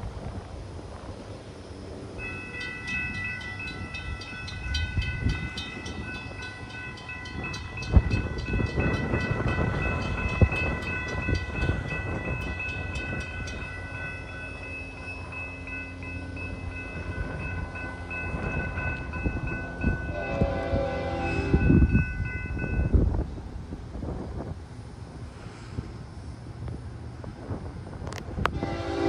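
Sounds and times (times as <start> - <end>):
crossing warning bell ringing: 2.1 - 23.2.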